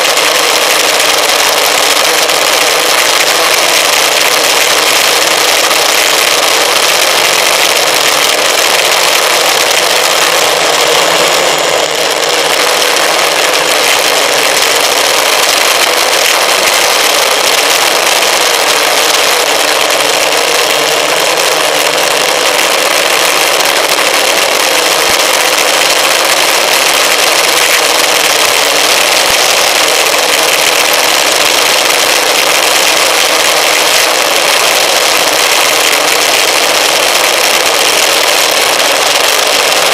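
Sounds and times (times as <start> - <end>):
electric motor and propeller: 0.0 - 39.9.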